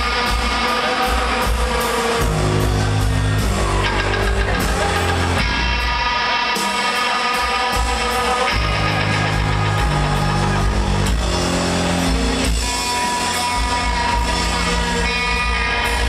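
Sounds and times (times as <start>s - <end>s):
bass guitar: 0.0s - 16.0s
drum kit: 0.0s - 16.0s
electric guitar: 0.0s - 16.0s.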